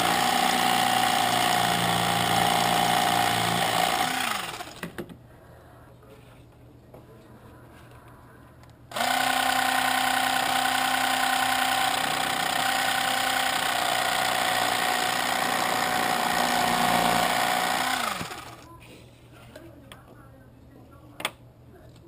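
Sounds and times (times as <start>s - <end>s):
small electric motor running: 0.0s - 4.8s, 8.9s - 18.6s
blade cutting wood: 0.0s - 4.9s, 8.9s - 18.6s.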